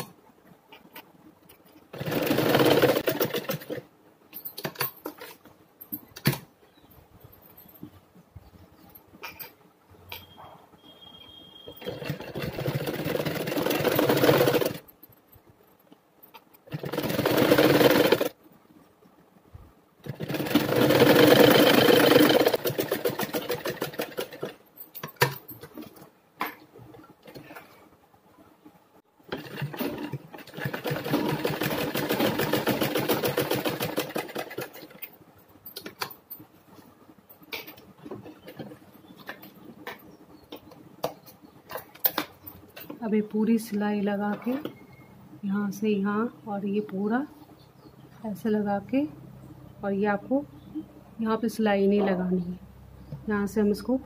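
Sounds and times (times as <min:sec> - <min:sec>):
sewing machine stitching: 0:01.9 - 0:03.8, 0:11.7 - 0:14.8, 0:16.7 - 0:18.4, 0:20.0 - 0:24.6, 0:29.3 - 0:35.0.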